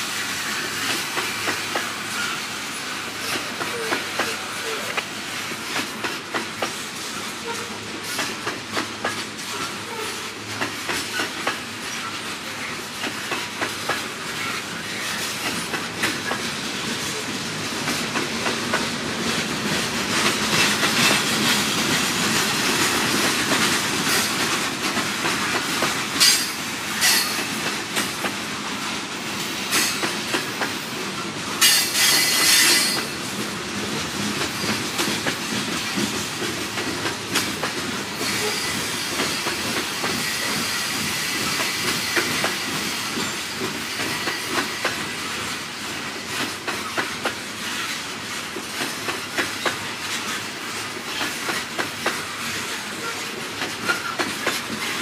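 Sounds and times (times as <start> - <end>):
train wheels clickety-clack: 0.0 - 55.0
high wheel squeal: 31.6 - 33.1, 38.2 - 44.9.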